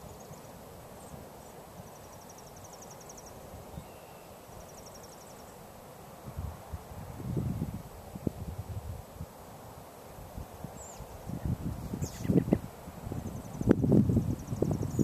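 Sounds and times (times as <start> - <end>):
steady rush of wind: 0.0 - 15.0
wind buffeting microphone: 6.3 - 9.1, 10.3 - 15.0.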